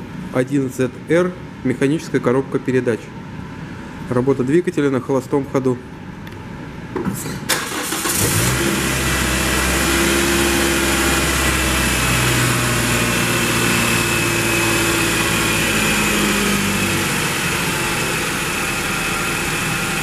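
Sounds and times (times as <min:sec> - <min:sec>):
car engine starting and idling: 0:07.5 - 0:20.0.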